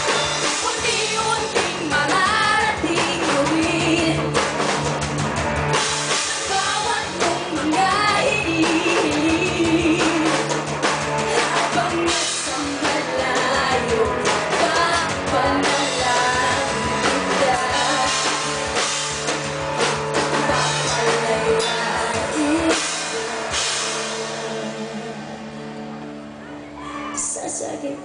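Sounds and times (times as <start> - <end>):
woman singing lead: 0.0 - 4.7, 6.0 - 19.4, 20.2 - 28.0
drum kit: 0.0 - 27.7
bass guitar: 0.0 - 28.0
electric guitar: 0.0 - 28.0.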